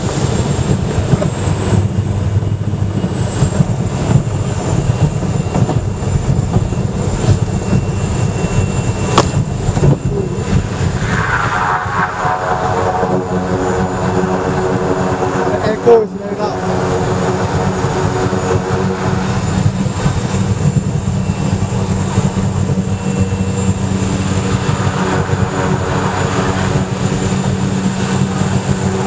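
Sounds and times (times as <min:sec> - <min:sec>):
low rattling plane rumble: 0:00.0 - 0:29.0
propeller engine note: 0:00.0 - 0:29.0.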